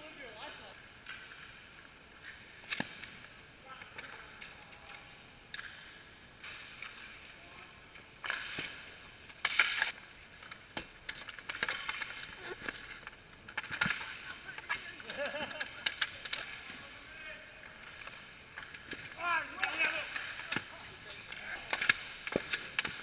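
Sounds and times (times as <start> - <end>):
hockey sticks and puck clacking: 0.0 - 23.0
skate blades scraping ice: 5.6 - 23.0.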